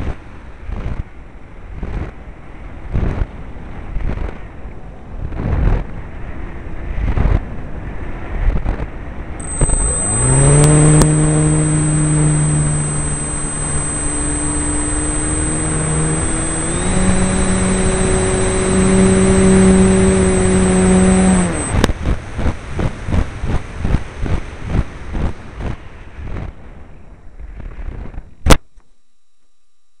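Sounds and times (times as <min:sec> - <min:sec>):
model airplane motor whining: 0:09.4 - 0:21.8
rhythmic pulses: 0:09.4 - 0:21.8.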